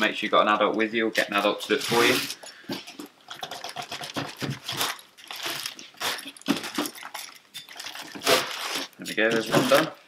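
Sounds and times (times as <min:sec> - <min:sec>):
plastic wrap crinkling: 0:01.1 - 0:02.4, 0:03.6 - 0:10.0.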